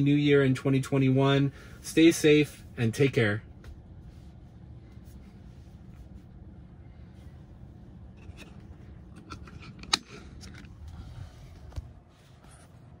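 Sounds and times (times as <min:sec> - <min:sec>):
low steady hum: 0:00.0 - 0:13.0
phone handling clicks and rubbing: 0:08.1 - 0:12.0.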